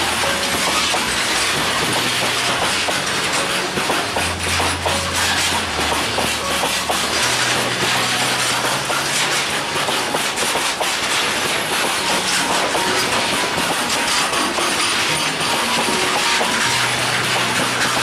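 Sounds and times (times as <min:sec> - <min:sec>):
train wheels rumbling on rails: 0:00.0 - 0:18.0
wheels and couplings clattering: 0:00.0 - 0:18.0.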